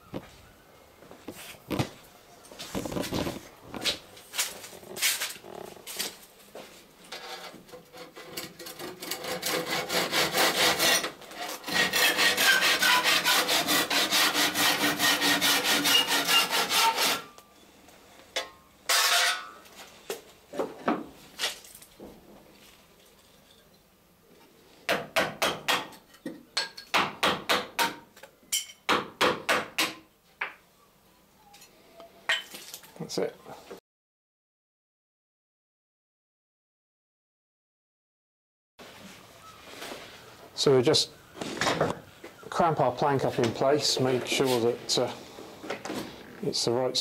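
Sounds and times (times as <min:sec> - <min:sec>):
handsaw cutting wood: 0:07.9 - 0:17.3.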